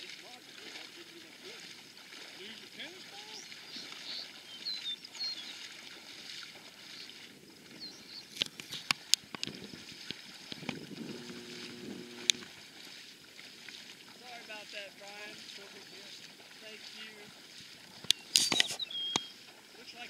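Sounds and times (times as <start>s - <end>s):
legs wading through water and reeds: 0.0s - 20.0s
sharp clicks: 11.3s - 12.4s.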